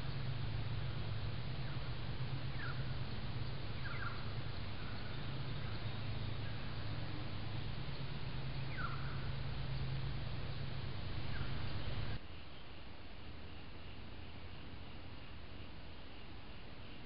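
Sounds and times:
bird chirps: 0.0s - 12.2s
microphone hiss and hum: 0.0s - 17.0s.

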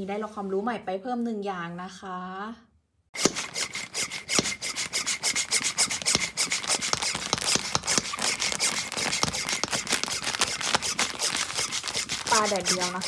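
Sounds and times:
plastic bag crackling: 6.4s - 13.0s.

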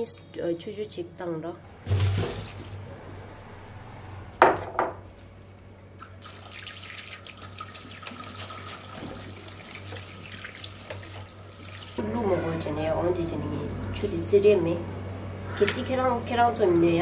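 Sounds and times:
tap water splashing in sink: 6.2s - 12.0s.

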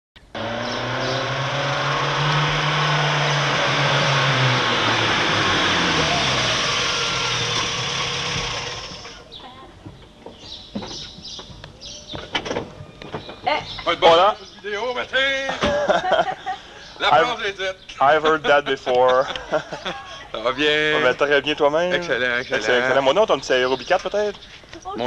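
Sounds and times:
car engine running: 0.2s - 9.2s.

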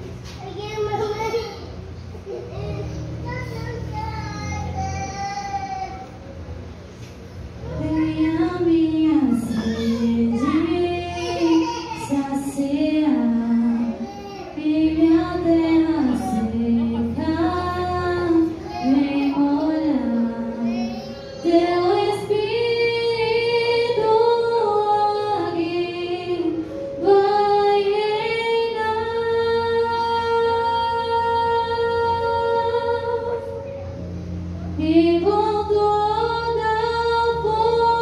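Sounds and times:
keyboard accompaniment: 0.0s - 38.0s
choir singing a hymn: 14.6s - 33.5s.

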